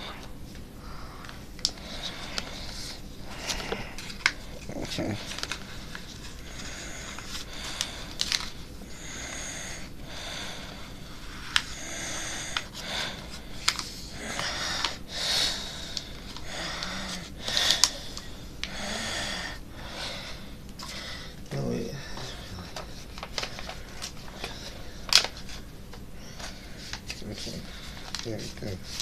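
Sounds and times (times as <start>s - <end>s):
sharp ticks of paper folds: 1.6s - 8.6s, 12.5s - 18.8s, 22.2s - 25.6s, 26.4s - 29.0s
paper rustling and crinkling: 1.7s - 8.6s, 22.2s - 29.0s.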